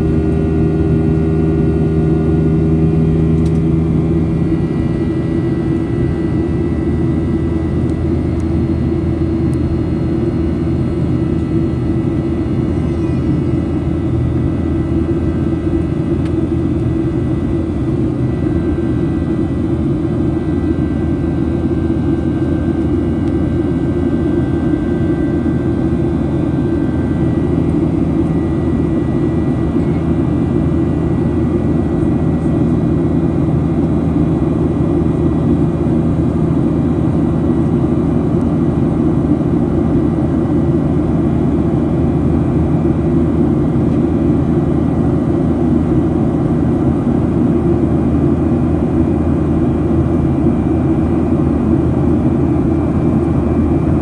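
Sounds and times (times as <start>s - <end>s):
jet engine rumble in cabin: 0.0s - 54.0s.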